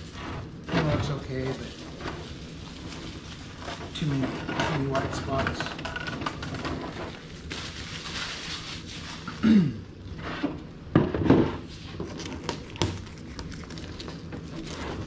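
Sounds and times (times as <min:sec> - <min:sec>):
plastic film crinkling: 0:00.0 - 0:09.4, 0:12.0 - 0:15.0.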